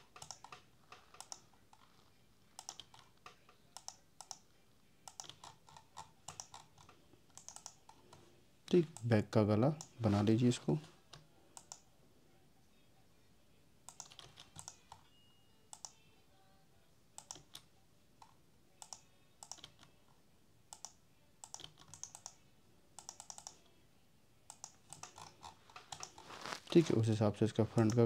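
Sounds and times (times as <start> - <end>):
keyboard typing clicks: 0.0 - 1.8, 2.6 - 4.4, 5.1 - 8.1, 13.9 - 15.0, 15.7 - 16.0, 17.2 - 19.9, 20.7 - 22.4, 23.0 - 23.6, 24.5 - 26.2.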